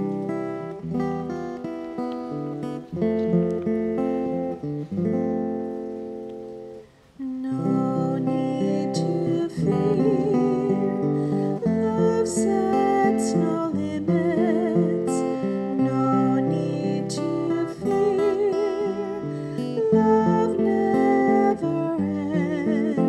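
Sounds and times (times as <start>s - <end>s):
acoustic guitar strumming chords: 0.0s - 23.0s
person singing a hymn: 7.2s - 23.0s.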